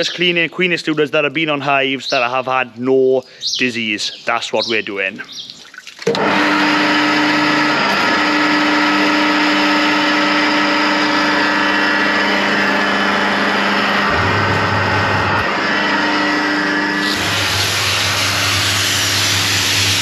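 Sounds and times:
steam pressure washer drone: 6.1s - 20.0s.

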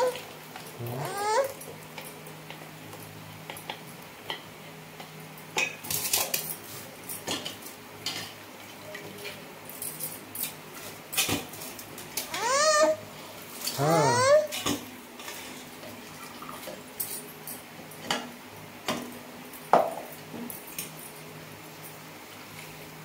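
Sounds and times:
high-pitched rising vocal call: 0.8s - 1.6s, 12.4s - 13.0s, 13.8s - 14.5s.

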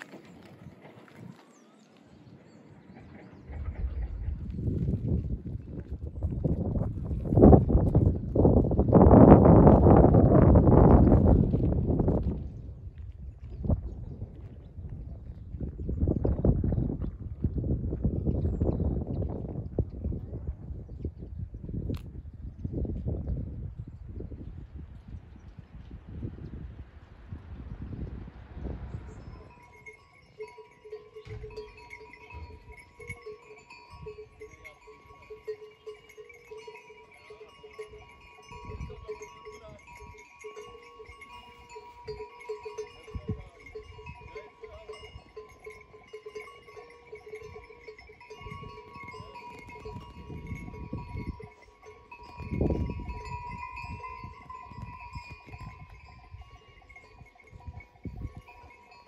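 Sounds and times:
sheep bells jingling: 3.6s - 12.4s, 28.8s - 59.0s.

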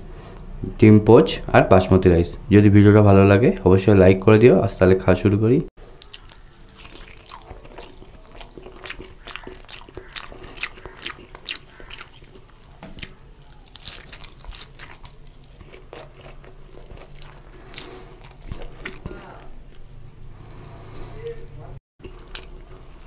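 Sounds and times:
man chewing food: 5.8s - 23.0s.

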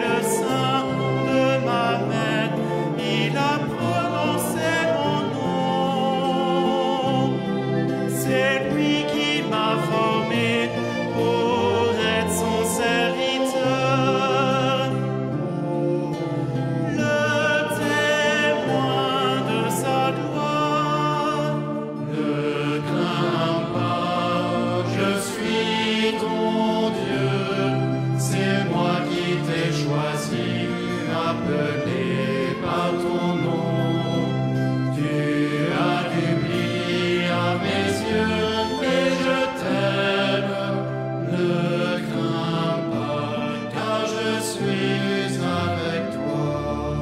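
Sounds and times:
choir singing long notes: 0.0s - 47.0s.

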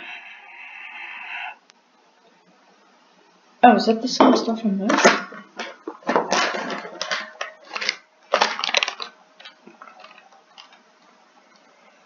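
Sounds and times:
foil snack bag crinkling: 6.6s - 10.8s.

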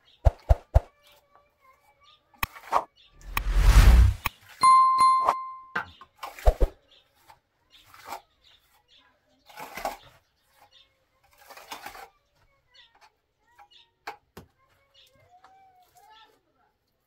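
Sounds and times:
bell-like ding: 4.6s - 5.8s
trowel scraping wet plaster: 9.4s - 12.2s.

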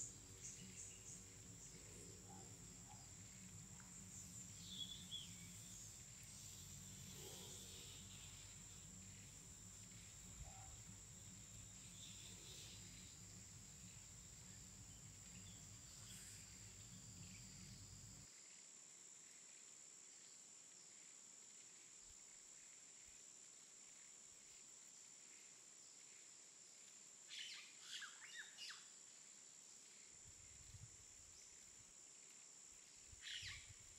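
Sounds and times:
steady high hiss: 0.0s - 18.6s
bird chirps: 4.2s - 9.4s.

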